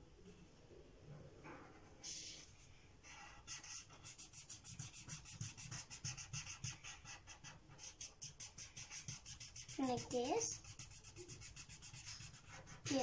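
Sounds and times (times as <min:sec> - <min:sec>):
felt-tip marker scrubbing on paper: 0:03.2 - 0:13.0.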